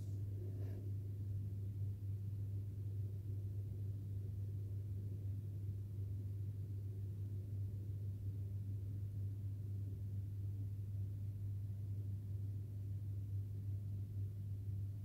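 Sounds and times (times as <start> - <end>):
faint room noise: 0.0 - 15.0
steady low hum: 0.0 - 15.0.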